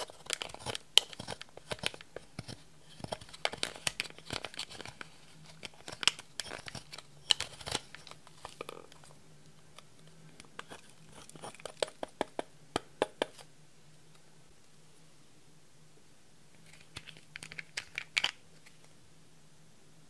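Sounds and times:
makeup powder crushed and scraped: 0.0s - 8.8s.

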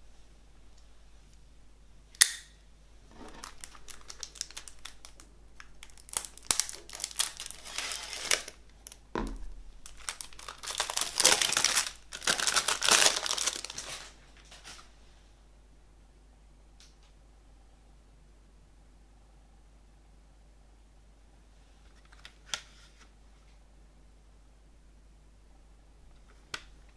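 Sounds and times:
cellophane crinkling: 3.2s - 9.0s, 9.8s - 14.9s
knife slitting cellophane: 6.1s - 8.6s.

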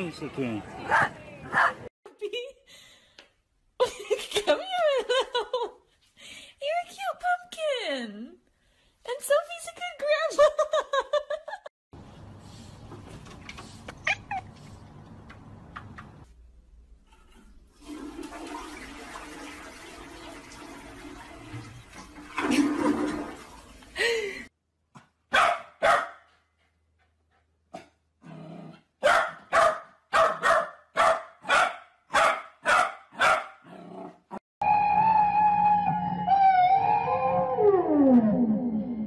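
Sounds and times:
toilet flushing: 17.3s - 24.3s
puppy barking: 25.3s - 26.2s, 29.0s - 33.6s.

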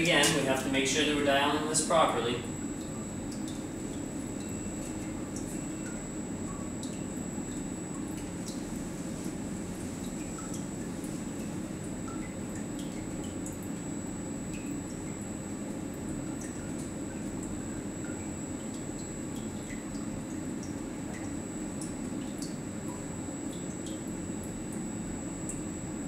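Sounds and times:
faint high whine: 0.0s - 8.6s
liquid drips: 0.0s - 26.0s
pumps humming: 0.0s - 26.0s.

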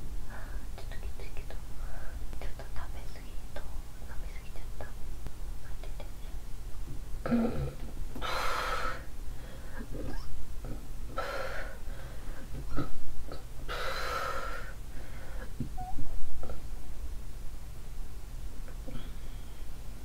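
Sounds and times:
woman retching: 7.2s - 7.8s, 9.8s - 10.8s, 12.6s - 13.4s.

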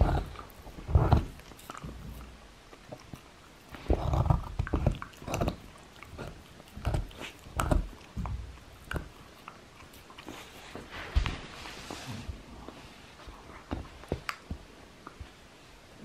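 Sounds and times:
dog teeth gnawing wood: 0.0s - 10.9s.

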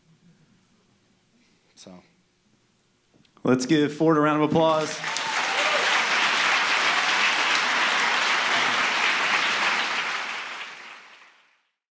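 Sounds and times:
audience applauding: 4.6s - 11.7s.

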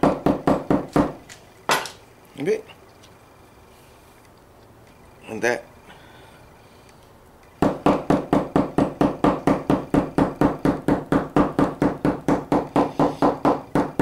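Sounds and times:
hammer tapping leaf on wooden board: 7.6s - 14.0s.

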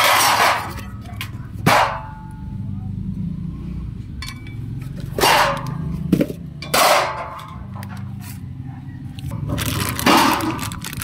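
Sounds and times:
metal brackets clanking and scraping: 0.0s - 2.4s, 4.1s - 8.5s.

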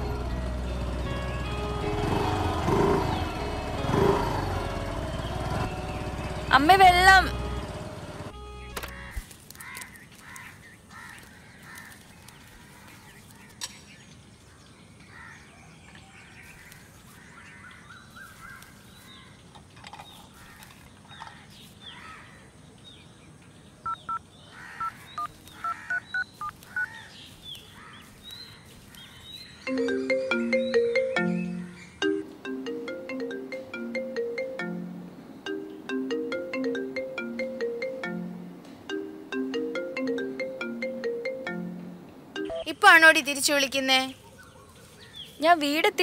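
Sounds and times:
birds chirping: 0.0s - 46.0s
mobile phone ringtone: 29.7s - 42.8s.

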